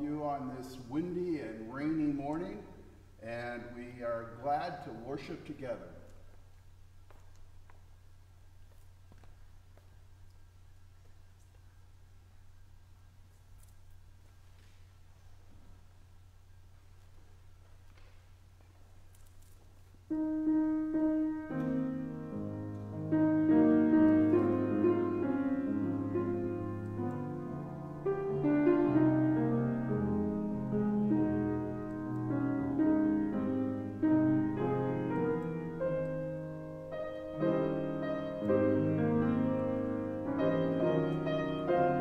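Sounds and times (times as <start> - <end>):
slow keyboard chords: 19.9 - 42.0.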